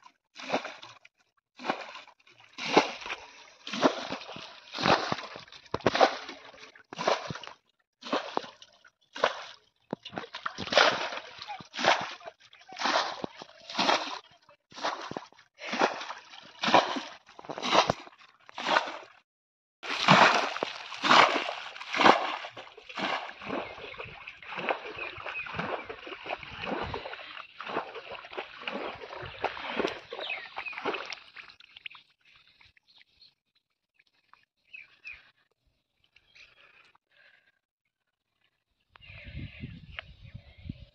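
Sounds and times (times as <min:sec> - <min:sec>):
muddy water splashing: 0:00.0 - 0:19.2, 0:19.8 - 0:33.2.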